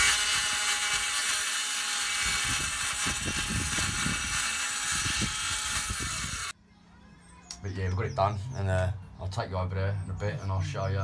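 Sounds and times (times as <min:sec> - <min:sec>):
circular saw cutting wood: 0:00.0 - 0:06.6.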